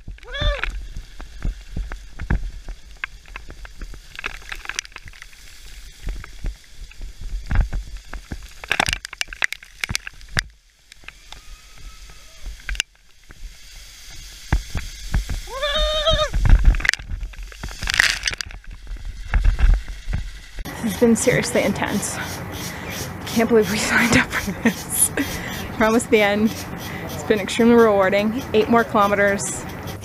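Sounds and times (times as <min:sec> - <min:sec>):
wind rumble on microphone: 0:00.0 - 0:04.3, 0:05.0 - 0:08.7, 0:14.4 - 0:22.1
bike rattling over gravel: 0:00.0 - 0:30.0.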